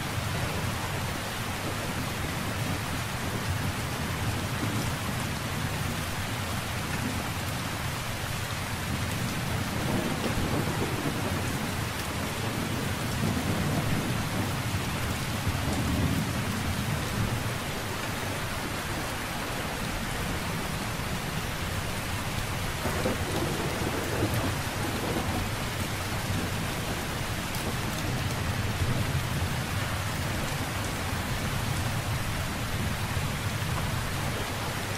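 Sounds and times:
heavy rain falling: 0.0 - 34.9
thunder rumbling: 9.3 - 17.6, 22.5 - 34.6.

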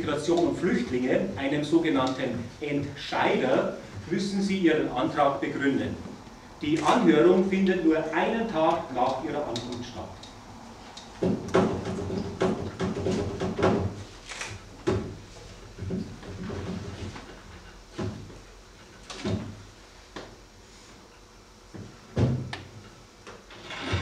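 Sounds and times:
short knocks and bumps: 11.2 - 14.0, 14.8 - 17.3.

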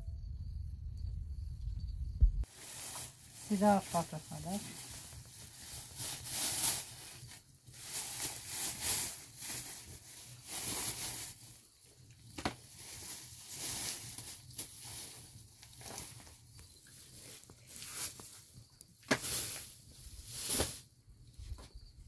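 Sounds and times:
plastic bag crinkling: 2.5 - 11.6, 12.4 - 16.4.

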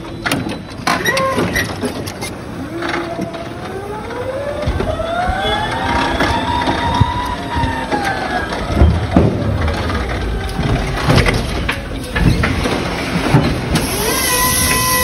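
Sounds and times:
forklift rumble and whine: 0.0 - 15.0
clanks and knocks: 4.6 - 14.0.

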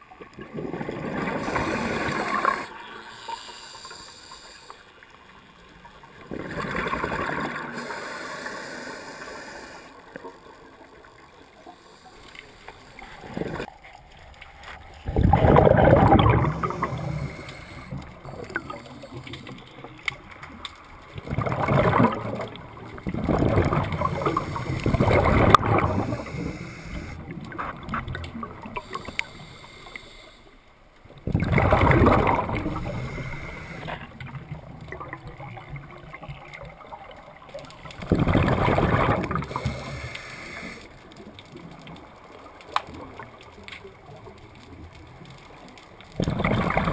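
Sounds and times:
diver's exhaled bubbles underwater: 0.0 - 2.8, 6.0 - 8.9, 12.9 - 13.7, 15.0 - 29.6, 31.1 - 42.1, 42.7 - 46.9.

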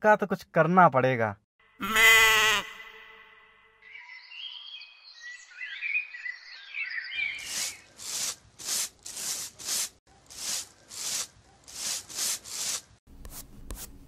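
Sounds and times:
birds chirping: 3.8 - 8.0
broom sweeping pavement: 7.2 - 14.0.

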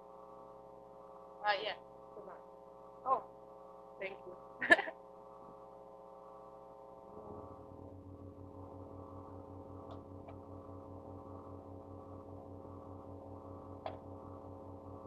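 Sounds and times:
electrical hum and buzz: 0.0 - 15.0
pulsing low drone: 7.0 - 15.0.

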